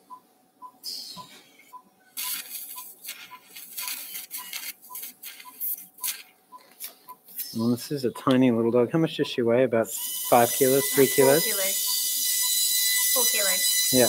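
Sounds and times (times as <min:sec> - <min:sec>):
anaesthesia monitor beeping: 0:00.0 - 0:14.0
surgical instruments hissing: 0:00.8 - 0:08.3, 0:09.8 - 0:14.0.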